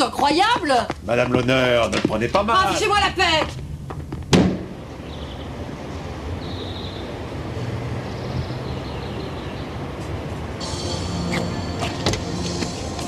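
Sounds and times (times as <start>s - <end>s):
low rumble of street traffic: 0.0s - 13.0s
door slamming shut: 4.3s - 4.8s.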